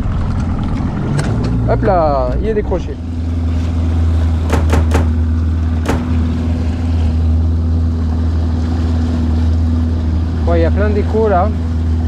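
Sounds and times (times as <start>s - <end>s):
outboard motor droning: 0.0s - 12.0s.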